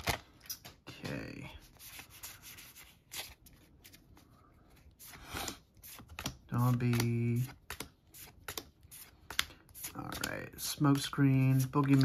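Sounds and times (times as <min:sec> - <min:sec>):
cards rustling: 0:00.0 - 0:12.0
cards swishing: 0:04.8 - 0:12.0.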